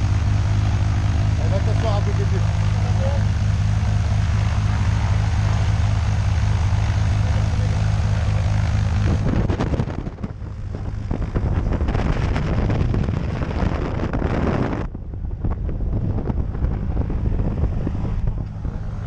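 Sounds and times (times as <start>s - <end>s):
propeller wash hissing: 0.0s - 9.5s
propeller plane engine idling: 0.0s - 19.0s.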